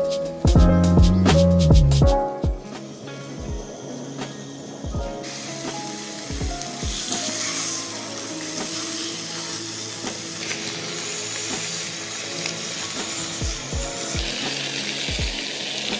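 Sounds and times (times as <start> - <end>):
background music with steady beat: 0.0 - 15.9
fish sizzling in a frying pan: 5.2 - 15.9.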